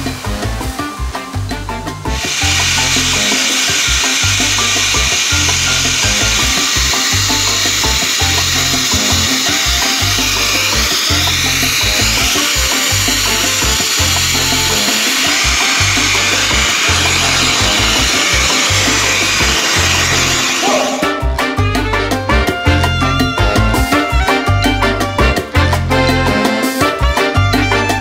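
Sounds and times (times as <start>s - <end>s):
background music with bass line: 0.0s - 28.0s
pet grooming dryer blowing: 2.1s - 21.2s.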